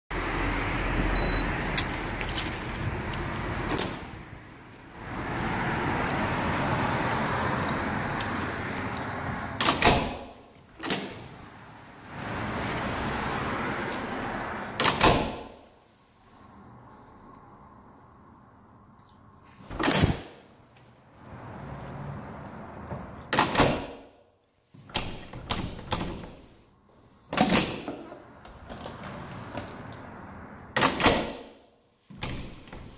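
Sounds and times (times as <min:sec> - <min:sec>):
short high beep: 0:01.2 - 0:01.5
door push bar latch clacking: 0:09.6 - 0:11.2, 0:14.8 - 0:15.5, 0:30.8 - 0:31.4.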